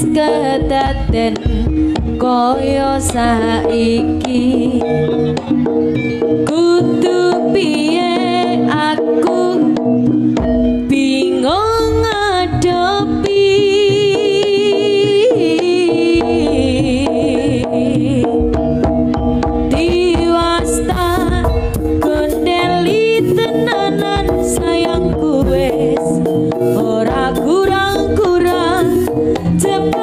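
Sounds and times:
hand drum strokes: 0.0 - 30.0
high wavering melody: 0.0 - 30.0
heavy low beat: 16.2 - 30.0.

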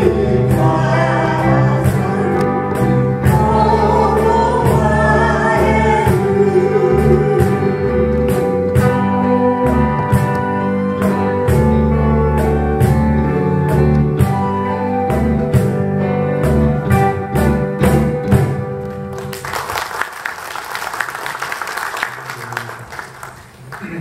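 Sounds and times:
person singing: 0.0 - 13.3
band playing slow song: 0.0 - 24.0.

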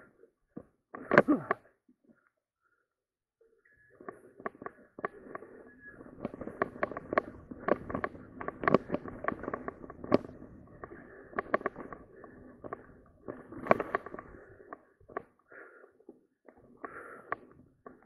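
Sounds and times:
bike rattling over bumps: 4.5 - 15.2.

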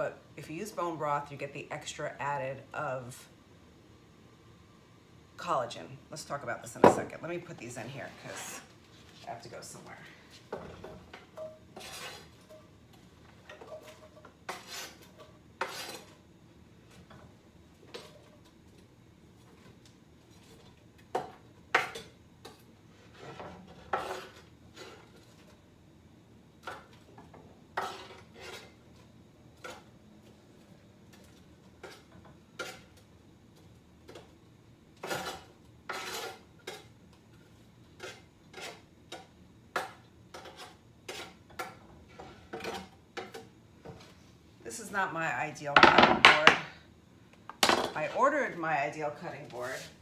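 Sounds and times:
spatula knocking and scraping pot: 10.4 - 12.6, 13.4 - 16.2, 27.7 - 28.8.

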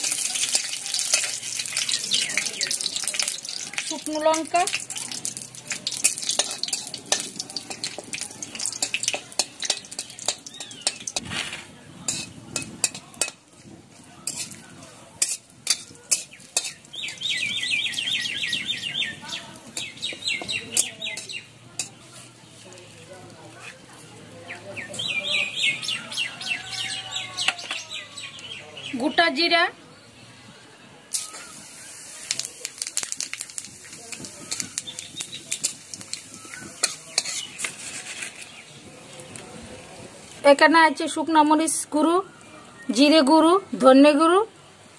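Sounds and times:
metal spatula scraping a pan: 0.0 - 2.0, 4.3 - 13.4, 14.2 - 14.6, 15.2 - 17.2, 35.5 - 38.6
spices sizzling in oil: 0.0 - 11.3, 12.1 - 24.0, 31.1 - 39.4
bird chirping: 8.2 - 11.2, 16.3 - 21.5, 24.4 - 29.2.

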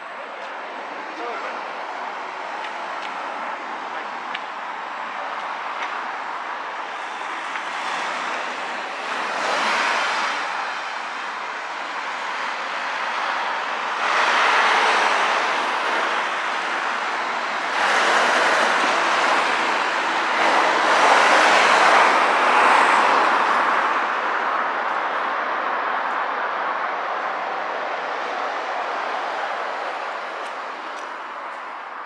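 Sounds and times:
passing vehicles rushing: 0.0 - 32.0.

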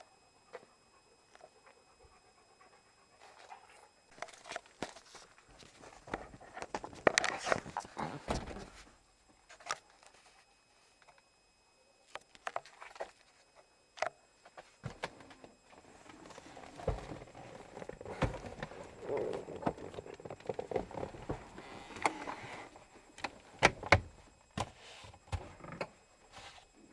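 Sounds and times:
hand rubbing camera: 15.8 - 22.8.

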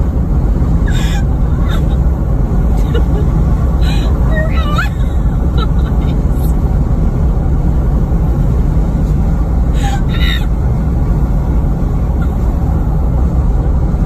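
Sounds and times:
road rumble: 0.0 - 14.0
person laughing: 0.9 - 2.1, 2.7 - 6.5.

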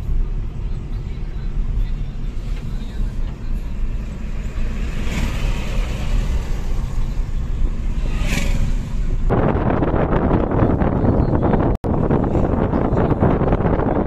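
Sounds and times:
road and engine rumble in cabin: 0.0 - 14.0
wind buffeting microphone: 7.8 - 14.0.

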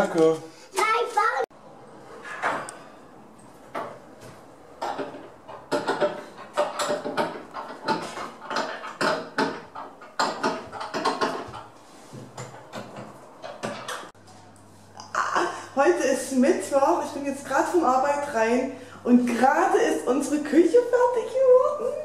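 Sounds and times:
knocks and clatter of hard objects: 3.4 - 14.2.

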